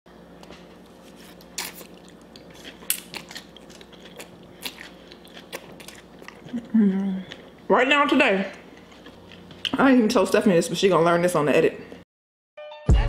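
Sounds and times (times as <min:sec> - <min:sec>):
chewing noodles with mouth clicks: 0:01.1 - 0:07.6.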